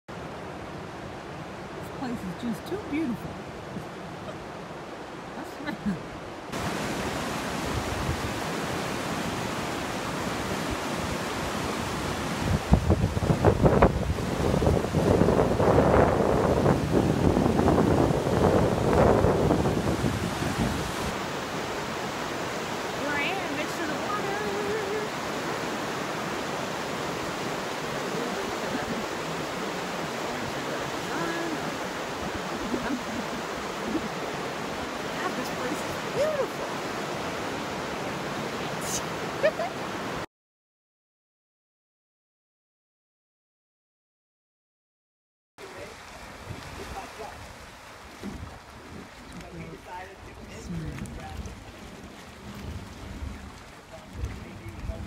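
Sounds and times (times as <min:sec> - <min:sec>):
river rapids rushing: 0:00.1 - 0:40.2.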